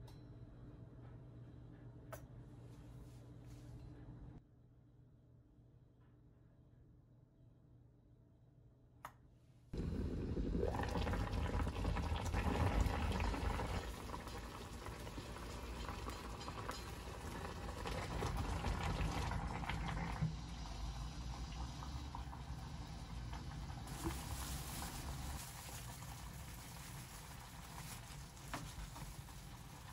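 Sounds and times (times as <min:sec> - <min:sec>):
stew bubbling in a pot: 0:09.8 - 0:29.9.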